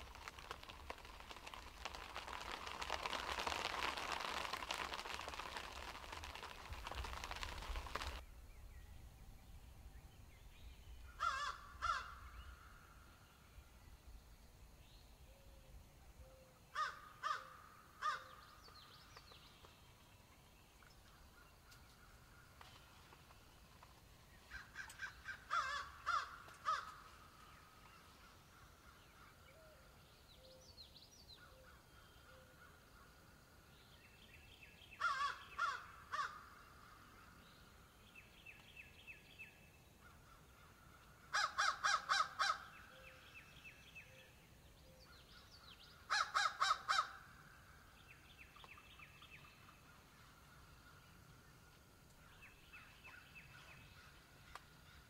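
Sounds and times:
distant bird or insect song: 0.0s - 55.0s
crows cawing: 11.2s - 12.2s, 16.8s - 18.3s, 24.5s - 27.1s, 35.0s - 36.5s, 41.3s - 42.7s, 46.1s - 47.2s.

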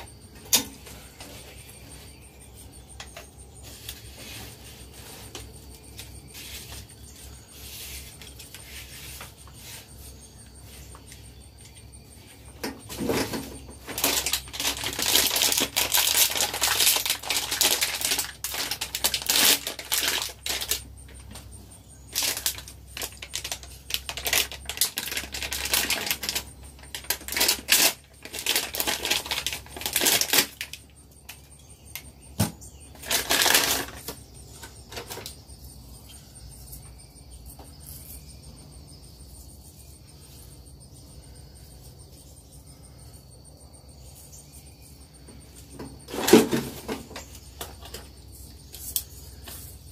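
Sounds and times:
plastic packaging crinkling: 13.9s - 20.9s, 22.1s - 30.8s, 33.0s - 34.1s.

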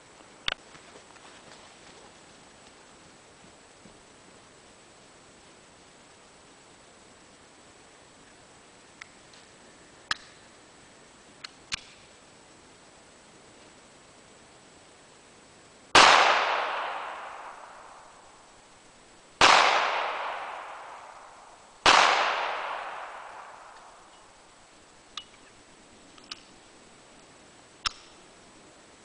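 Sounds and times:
faint sharp clicks: 0.4s - 0.6s, 9.0s - 9.5s, 10.1s - 10.4s, 11.4s - 12.0s, 26.1s - 26.5s, 27.8s - 28.2s
pistol shots echoing: 16.0s - 18.0s, 19.4s - 24.0s.

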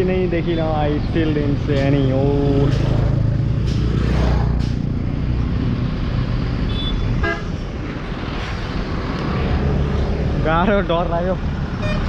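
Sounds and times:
road noise: 0.0s - 12.0s
vehicle horn toot: 6.7s - 7.5s, 11.8s - 12.0s.

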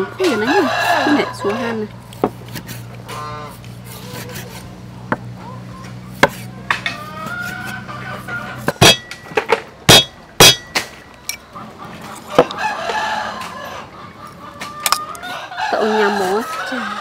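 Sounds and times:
cleaver chopping on wooden board: 6.2s - 7.0s, 8.6s - 9.2s, 9.9s - 10.9s.

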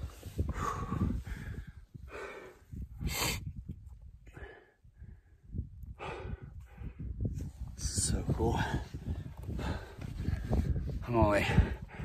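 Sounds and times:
low wind rumble: 0.0s - 12.0s
person breathing hard: 0.4s - 3.5s, 4.3s - 7.2s, 8.7s - 10.8s, 11.5s - 12.0s.

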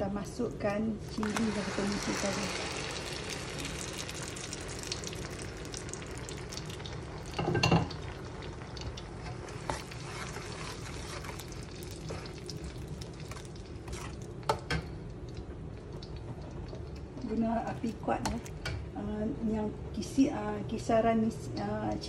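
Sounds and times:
chili paste sizzling in oil: 0.9s - 14.8s.

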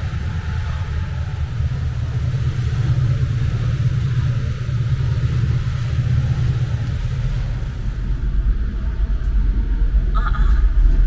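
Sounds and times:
ship engine rumble: 0.0s - 11.0s.

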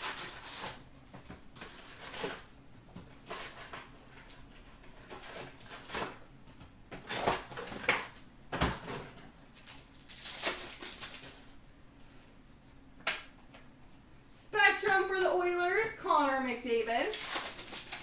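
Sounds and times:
cards and packs rustling: 9.6s - 11.5s, 16.8s - 18.0s.

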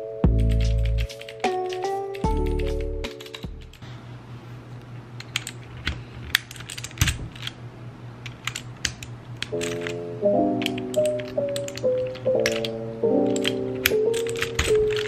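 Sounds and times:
music: 0.0s - 3.8s, 9.7s - 15.0s
plastic keyboard clicks and clacks: 0.4s - 3.8s, 8.3s - 10.0s, 10.6s - 15.0s.

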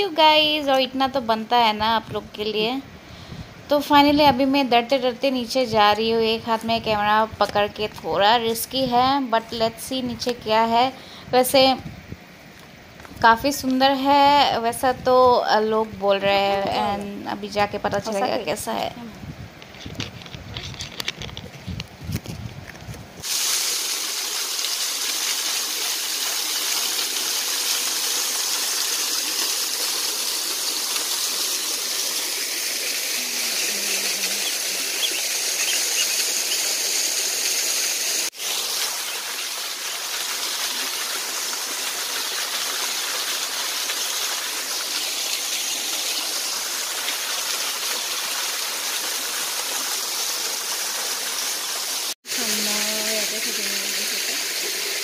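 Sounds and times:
small waterfall splashing: 23.2s - 55.0s.

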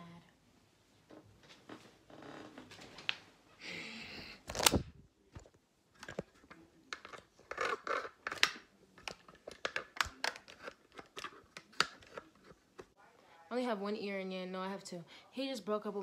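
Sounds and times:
camera handling noise: 4.5s - 4.9s.

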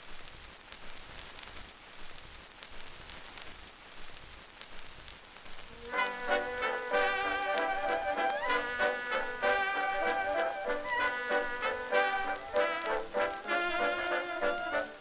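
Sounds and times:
record surface crackle: 0.0s - 15.0s
jazz orchestra recording: 5.7s - 15.0s.

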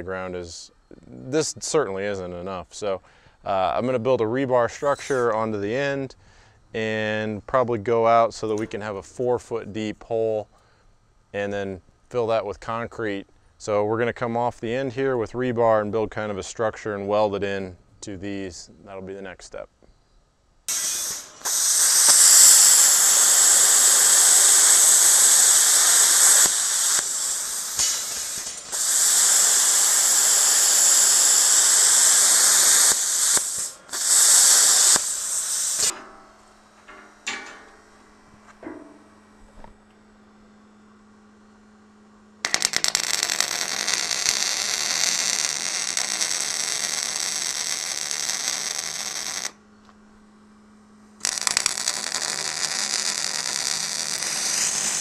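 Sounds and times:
low steady hum: 0.0s - 44.8s, 49.5s - 52.4s
welding arc crackling: 4.6s - 5.7s, 20.7s - 38.1s, 42.4s - 49.6s, 51.2s - 55.0s
plasma cutter hissing: 4.7s - 5.6s, 20.7s - 36.1s, 42.4s - 49.5s, 51.2s - 55.0s.

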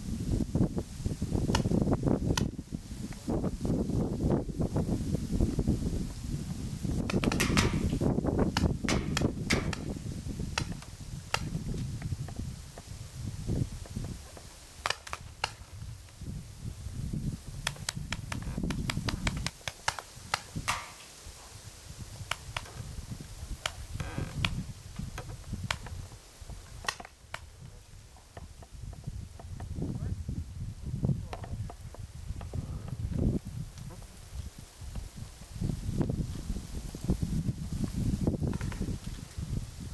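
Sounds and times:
wind rumble on microphone: 0.0s - 39.9s
paintball markers popping: 7.0s - 11.6s, 14.8s - 15.7s, 17.6s - 21.0s.

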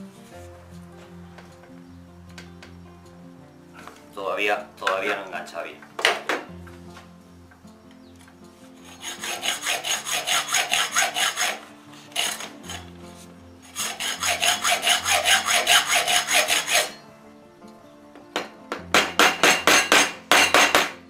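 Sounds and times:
hacksaw sawing metal: 8.8s - 13.0s, 13.6s - 17.0s, 18.9s - 21.0s.

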